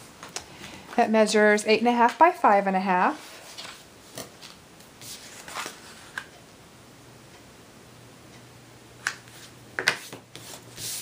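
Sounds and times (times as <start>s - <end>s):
paper rustling: 3.2s - 6.3s.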